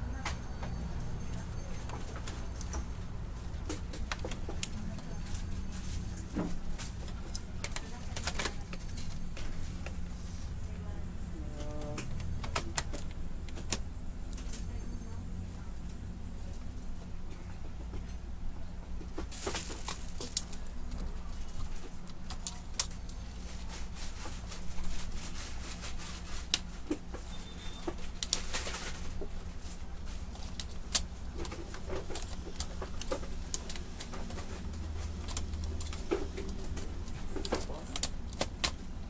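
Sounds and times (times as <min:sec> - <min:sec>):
steady low hum: 0:00.0 - 0:39.0
plastic parts clicking and rattling: 0:01.7 - 0:10.1, 0:11.6 - 0:14.7, 0:19.1 - 0:39.0.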